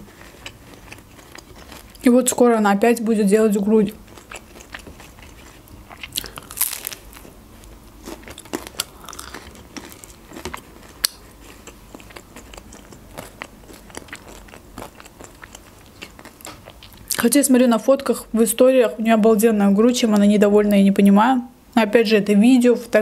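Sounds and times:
crunchy bread chewing: 0.0s - 2.1s, 3.9s - 17.2s.

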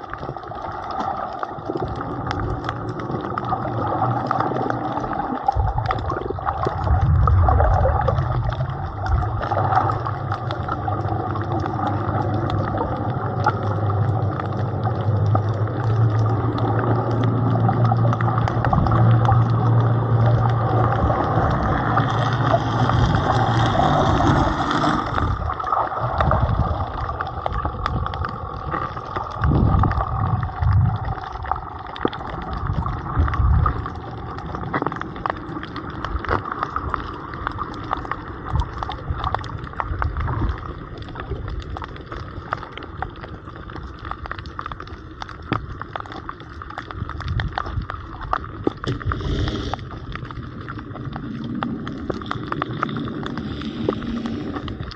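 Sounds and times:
small sharp underwater clicks: 0.0s - 54.9s
water surging underwater: 0.0s - 54.9s.

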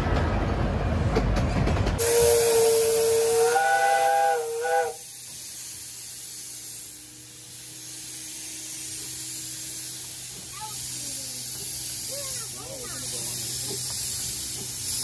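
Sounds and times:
steam locomotive whistle: 2.0s - 5.2s
steam hissing: 2.0s - 15.0s.

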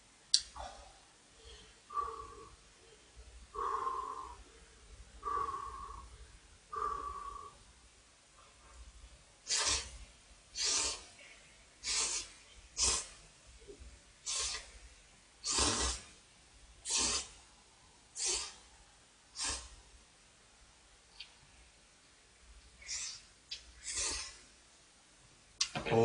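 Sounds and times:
person slurping noodles: 15.4s - 16.0s, 16.9s - 17.3s.

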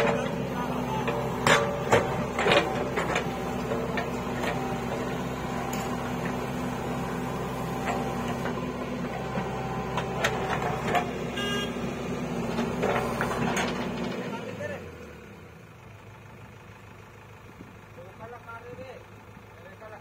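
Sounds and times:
diesel engine running under load: 0.0s - 20.0s.

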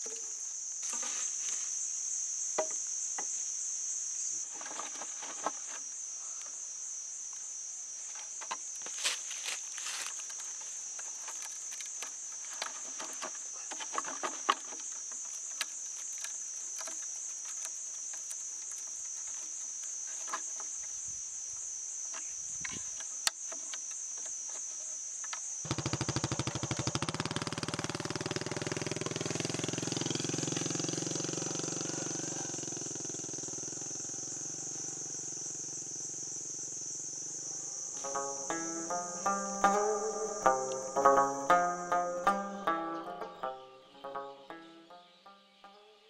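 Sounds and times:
bamboo strips rustling and tapping: 0.0s - 1.8s, 4.5s - 5.9s, 7.4s - 21.0s, 22.0s - 27.7s, 38.0s - 44.5s
high-pitched insect drone: 19.0s - 46.0s
small motorcycle engine running: 25.7s - 36.7s.

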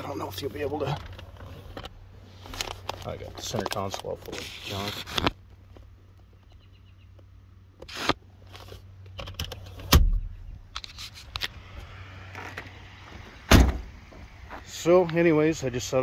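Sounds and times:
console lid thump: 13.5s - 13.9s.

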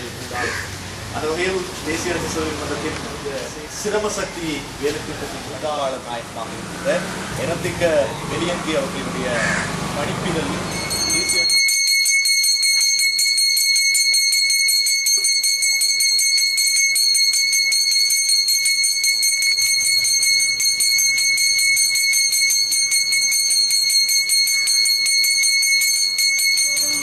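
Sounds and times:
hand bell rung rapidly: 10.5s - 27.0s.

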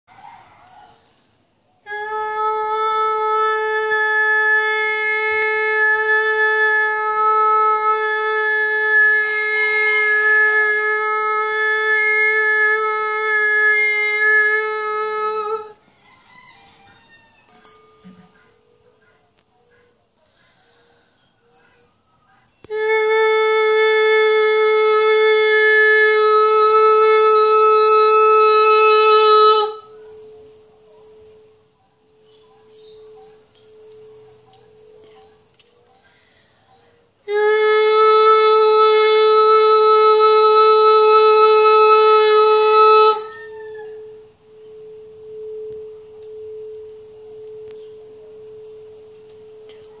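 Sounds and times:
woman overtone singing: 1.8s - 15.8s, 22.6s - 35.6s, 37.2s - 44.6s
singing bowl ringing: 17.2s - 19.0s, 24.2s - 36.1s, 39.5s - 50.0s.

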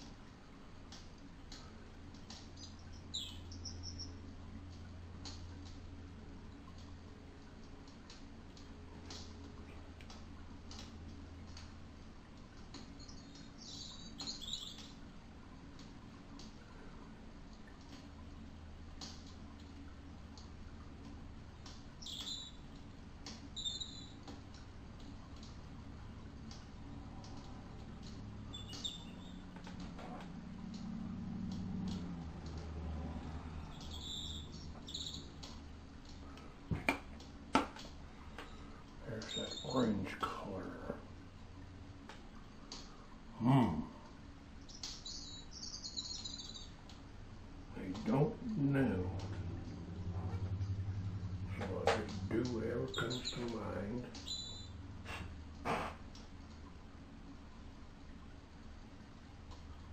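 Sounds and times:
low steady hum: 0.0s - 59.9s
faint light ticks: 0.8s - 15.0s, 15.7s - 16.7s, 17.4s - 28.9s, 29.5s - 41.0s, 59.4s - 59.9s
small bird chirping: 2.5s - 4.2s, 12.8s - 15.0s, 22.0s - 22.7s, 23.5s - 24.2s, 28.5s - 29.6s, 33.6s - 35.5s, 39.1s - 39.9s, 44.6s - 46.8s, 52.0s - 54.8s.

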